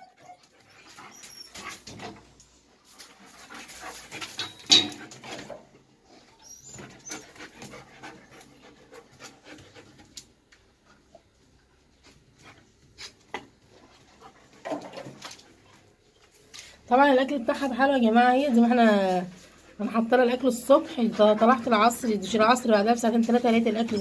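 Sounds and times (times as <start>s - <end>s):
dog panting: 6.8s - 11.1s, 19.0s - 22.4s.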